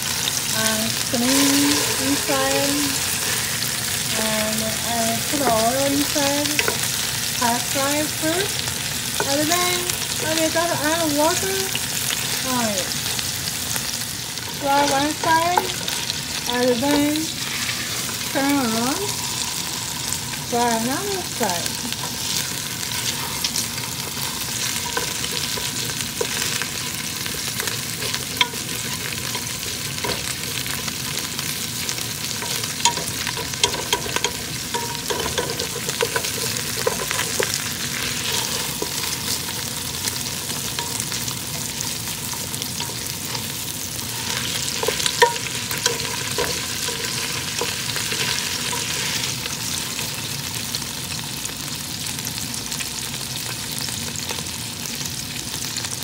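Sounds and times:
fish sizzling in hot oil: 0:00.0 - 0:56.0
spatula scraping a pot: 0:21.7 - 0:31.2, 0:32.2 - 0:49.3.

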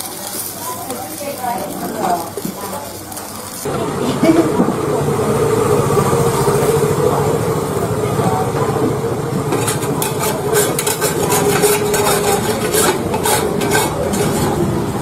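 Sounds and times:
low engine-like hum: 0:03.7 - 0:12.6
metal scoop scraping pan: 0:09.5 - 0:14.7.

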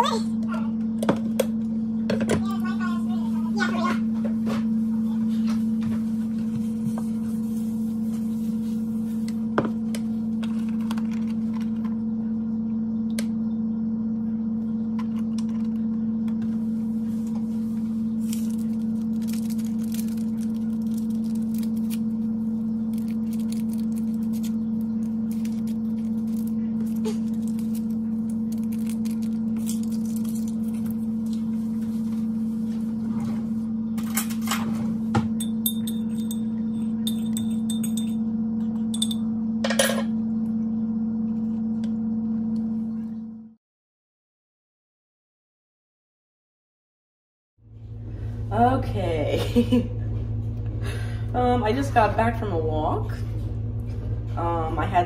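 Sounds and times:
steady low hum: 0:00.0 - 0:43.6, 0:47.6 - 0:55.0.

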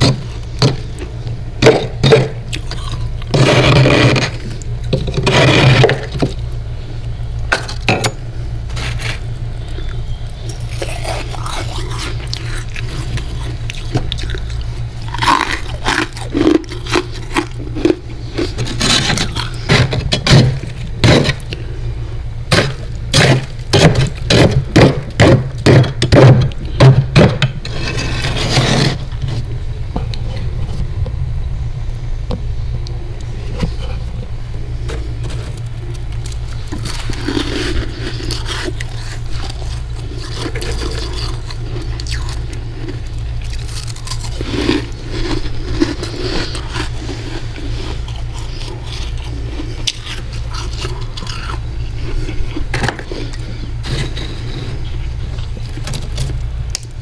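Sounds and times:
steady low hum: 0:00.0 - 0:57.0
metal spoon scraping frost: 0:01.7 - 0:06.4, 0:08.7 - 0:21.7, 0:27.6 - 0:29.4, 0:34.8 - 0:55.2.

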